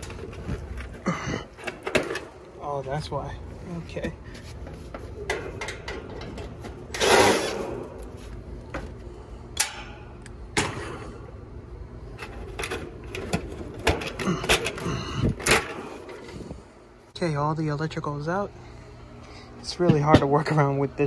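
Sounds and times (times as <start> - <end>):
wires rustling: 0.0 - 9.2.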